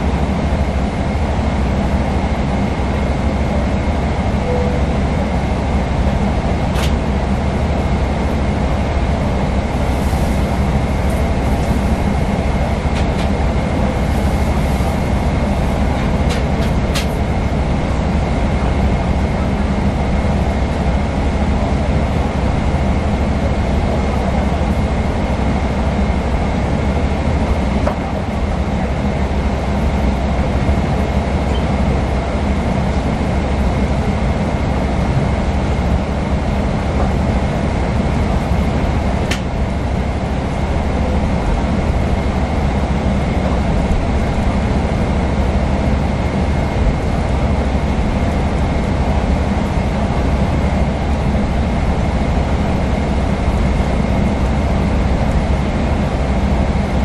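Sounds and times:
aircraft cabin engine rumble: 0.0s - 57.0s
faint high whine: 4.4s - 5.4s.

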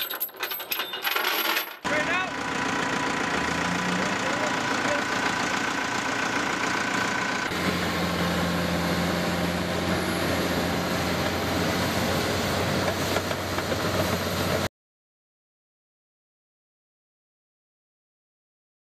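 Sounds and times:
diesel engine running: 1.8s - 14.7s.

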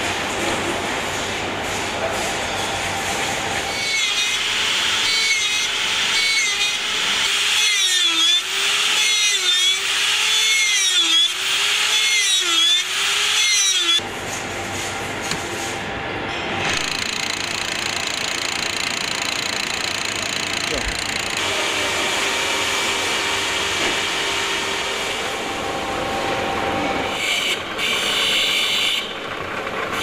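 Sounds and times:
steady machine noise: 0.0s - 30.0s
motor whine with dipping pitch: 4.0s - 14.1s, 16.3s - 30.0s.

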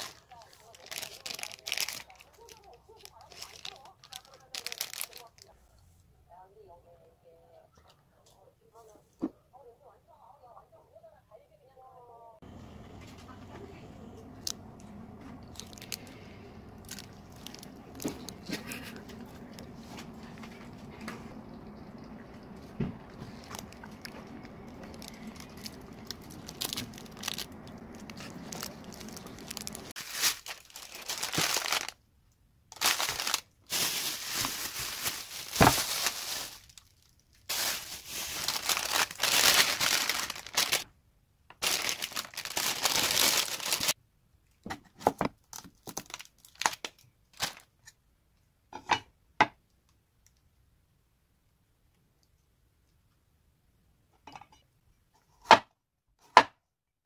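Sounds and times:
plastic bag rustling: 0.0s - 5.5s, 12.5s - 32.0s, 32.7s - 40.8s, 41.6s - 44.0s, 45.6s - 47.7s.

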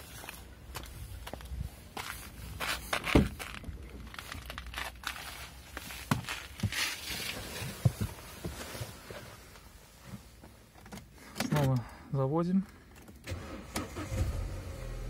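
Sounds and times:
footsteps: 0.0s - 10.6s
rustling: 0.0s - 11.3s.

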